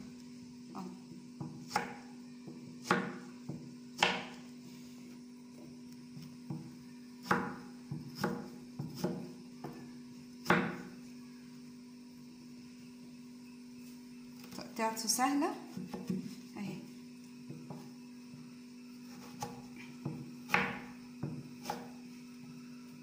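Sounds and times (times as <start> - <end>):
knife chopping on cloth: 2.8 - 4.4.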